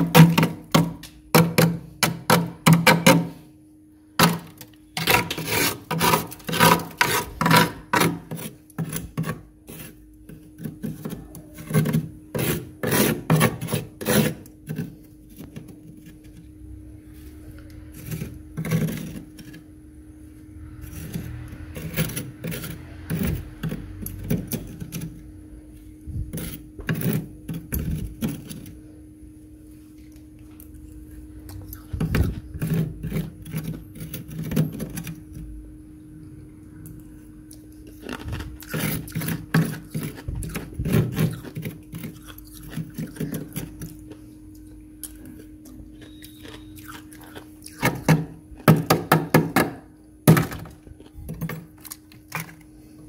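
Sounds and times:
steady low hum: 0.0s - 53.0s
metal utensil scraping frost: 4.5s - 10.0s, 10.6s - 14.9s, 38.0s - 42.1s.

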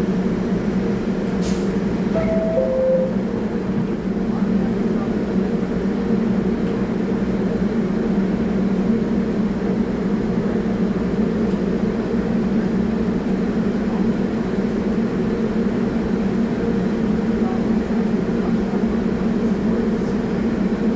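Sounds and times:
subway train humming: 0.0s - 20.9s.

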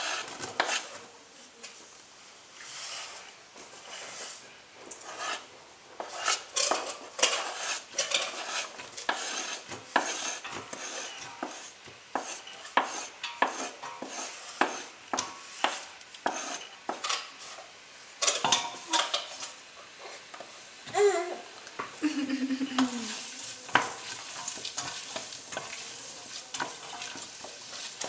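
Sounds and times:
wooden spoon scraping cutting board: 0.0s - 1.0s, 2.6s - 17.7s, 23.1s - 28.0s.

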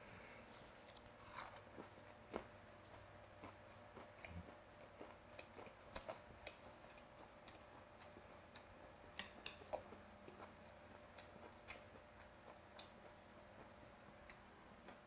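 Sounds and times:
quiet chewing: 0.0s - 15.0s
chopsticks ticking on plate: 5.0s - 10.5s.

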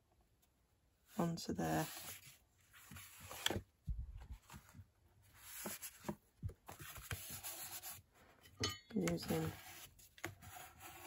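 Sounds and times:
paper rustling and rubbing: 4.2s - 8.1s, 9.2s - 11.0s.

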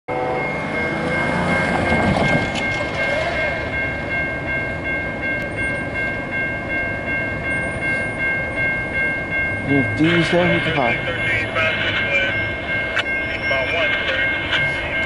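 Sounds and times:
car driving past: 0.1s - 3.6s
crossing warning bell ringing: 0.1s - 15.0s.

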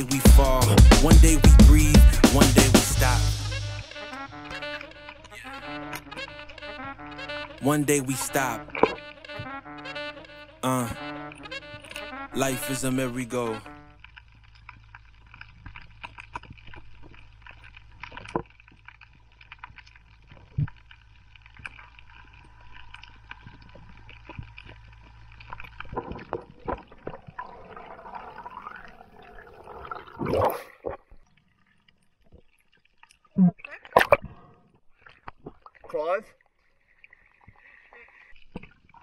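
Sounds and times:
underwater clicks and crackles: 8.7s - 10.4s, 13.7s - 39.0s
watery rush: 21.6s - 31.0s.

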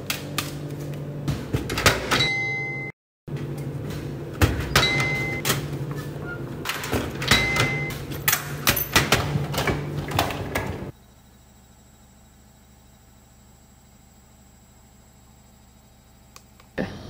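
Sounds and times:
vending machine hum: 0.0s - 17.0s
items clattering in bin: 4.4s - 10.9s.

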